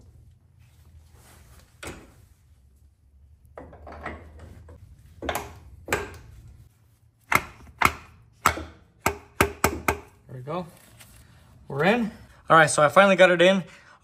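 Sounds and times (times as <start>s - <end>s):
metal clunks and knocks: 3.5s - 6.2s.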